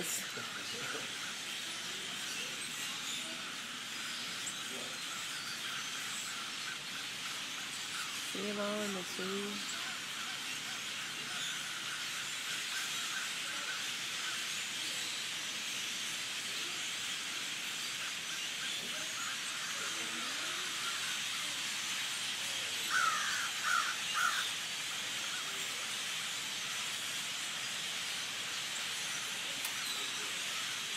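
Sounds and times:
flock of birds calling: 0.0s - 30.9s
short loud bird calls: 22.6s - 25.7s.

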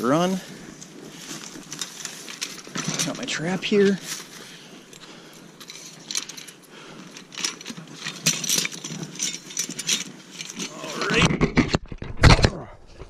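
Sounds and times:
metal trap and chain clinking: 1.2s - 4.3s, 4.9s - 11.1s.

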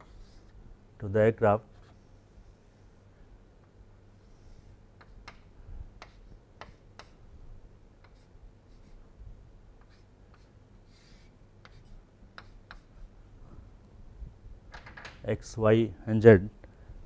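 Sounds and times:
chalk on chalkboard: 6.0s - 7.2s, 8.0s - 9.0s, 9.8s - 13.0s.

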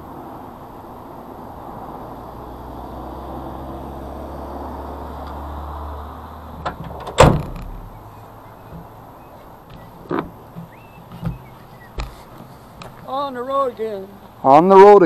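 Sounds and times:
tailgate slamming shut: 6.6s - 8.1s.

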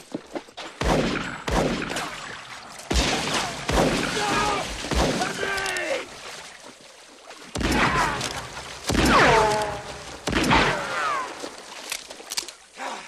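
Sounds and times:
loud gunshots: 2.9s - 5.4s.

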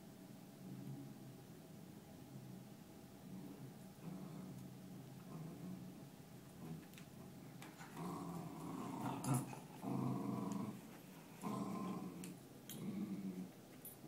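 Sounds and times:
dogs growling in play: 3.2s - 13.7s.

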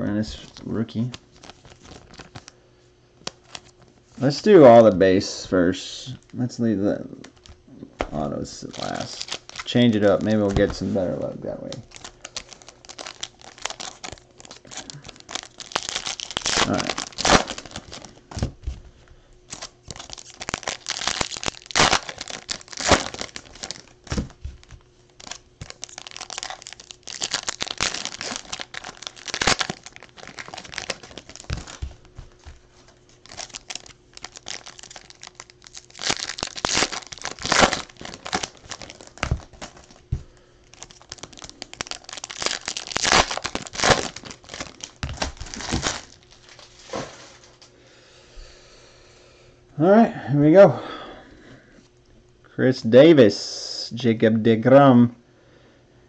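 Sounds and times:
card pack wrappers crinkling tearing: 0.3s - 2.5s, 3.2s - 3.9s, 7.2s - 18.5s, 19.5s - 47.5s.

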